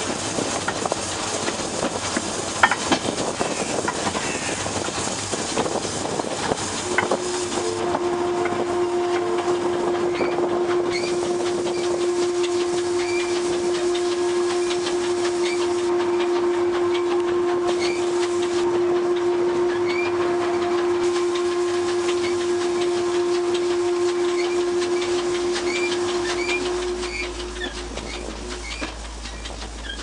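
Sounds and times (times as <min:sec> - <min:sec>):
steam locomotive moving on rails: 0:00.0 - 0:30.0
running gear clicks and squeaks: 0:25.7 - 0:30.0.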